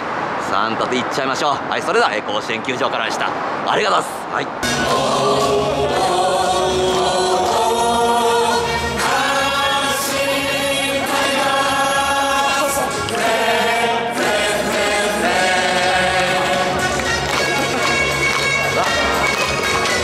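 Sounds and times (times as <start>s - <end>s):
choir singing an anthem: 4.6s - 18.4s.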